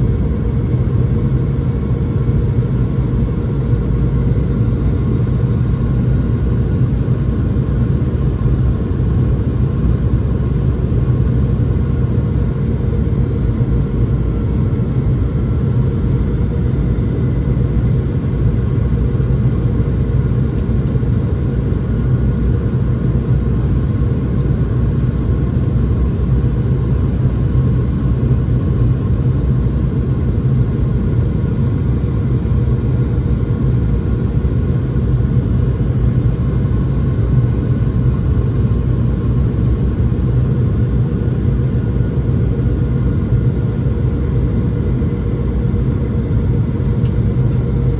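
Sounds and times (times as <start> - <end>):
faint high engine whine: 0.0 - 47.9
airliner cabin rumble: 30.1 - 47.9.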